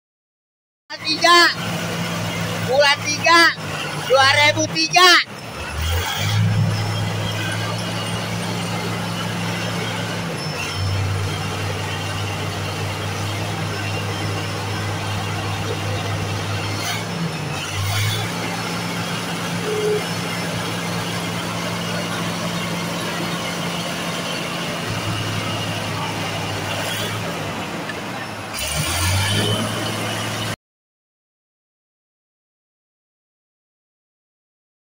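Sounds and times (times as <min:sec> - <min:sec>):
bulldozer diesel engine idling: 0:00.9 - 0:30.6.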